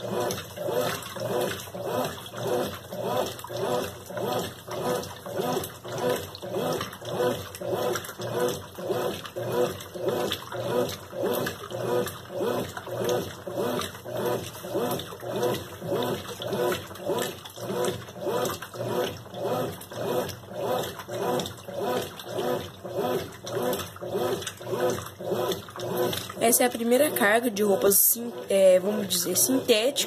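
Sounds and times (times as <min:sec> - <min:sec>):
washing machine sloshing clothes: 0:00.0 - 0:30.0.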